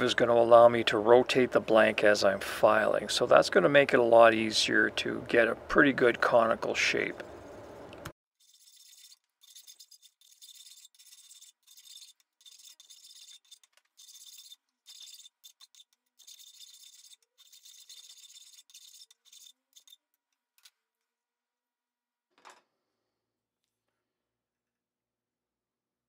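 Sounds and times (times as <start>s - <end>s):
hand file rasping on steel: 8.4s - 20.0s.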